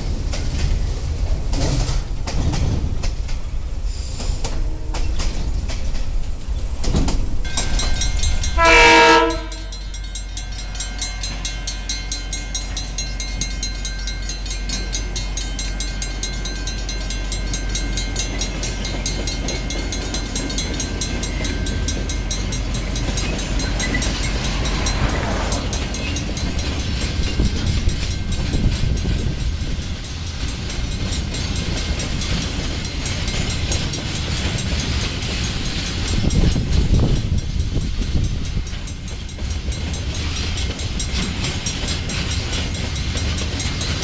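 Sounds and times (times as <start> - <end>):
train rumbling past: 0.0 - 44.0
crossing bells ringing: 7.4 - 44.0
locomotive horn blast: 8.6 - 9.8.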